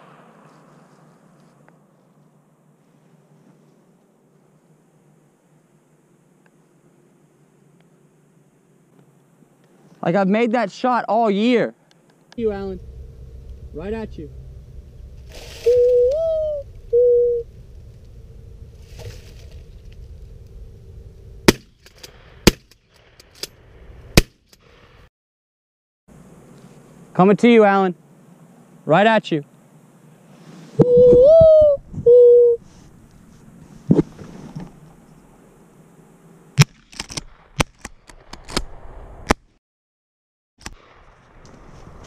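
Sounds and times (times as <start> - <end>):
wind rumble on microphone: 12.4 - 21.5, 30.8 - 32.3.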